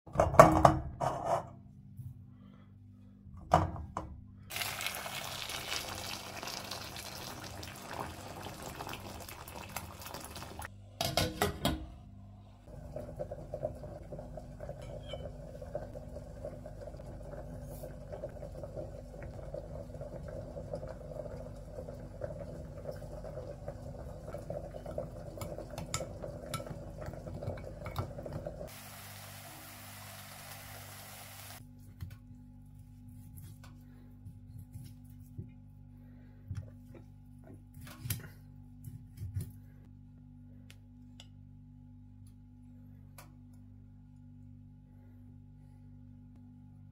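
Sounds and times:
water running into a pot: 0:04.5 - 0:10.7, 0:12.7 - 0:31.6.

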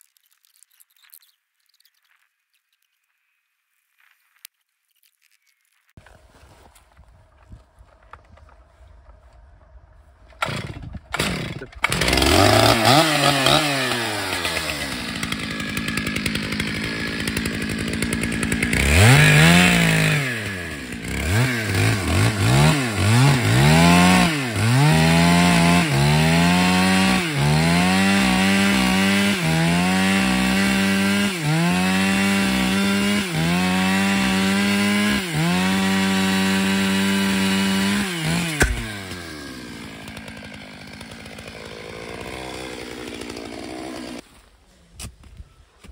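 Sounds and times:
chainsaw cutting log: 0:10.3 - 0:44.4
chainsaw revving and idling: 0:10.4 - 0:44.3.

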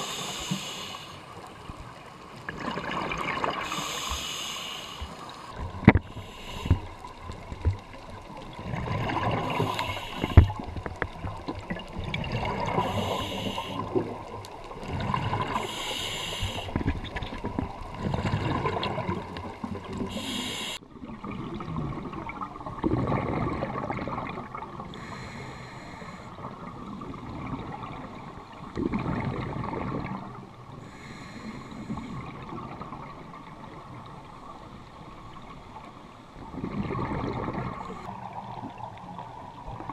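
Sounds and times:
diver breathing through regulator: 0:00.0 - 0:01.4, 0:03.6 - 0:07.2, 0:09.2 - 0:10.7, 0:12.7 - 0:14.0, 0:15.4 - 0:16.9, 0:20.1 - 0:20.8, 0:24.9 - 0:26.4, 0:30.8 - 0:32.2
bubbles rushing: 0:08.4 - 0:09.7, 0:11.6 - 0:12.9, 0:17.4 - 0:20.1, 0:21.0 - 0:24.6.

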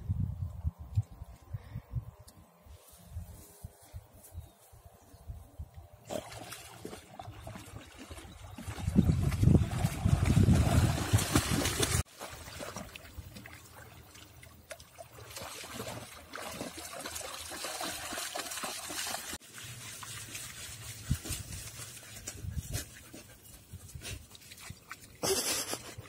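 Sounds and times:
dogs splashing through water: 0:06.0 - 0:22.0
paws scraping wet sand: 0:15.2 - 0:26.0.

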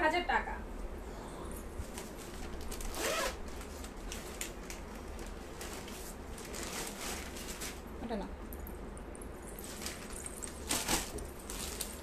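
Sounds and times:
fabric rustling: 0:01.8 - 0:04.4, 0:05.0 - 0:07.9.

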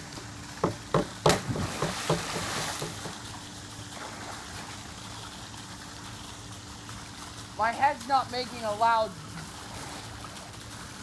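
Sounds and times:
water slapping and churning: 0:00.6 - 0:11.0
loud splash into pool: 0:01.3 - 0:03.2.

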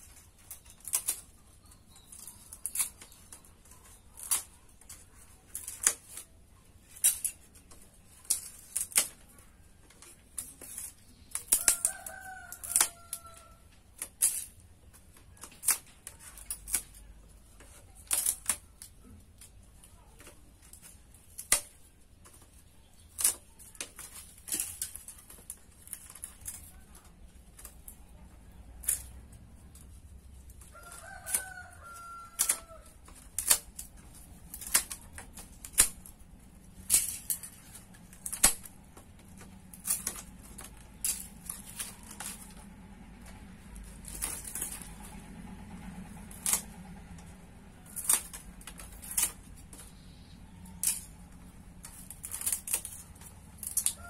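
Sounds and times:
split bamboo clicking and knocking: 0:00.0 - 0:54.0
rooster crowing: 0:11.6 - 0:13.6, 0:30.6 - 0:33.1.

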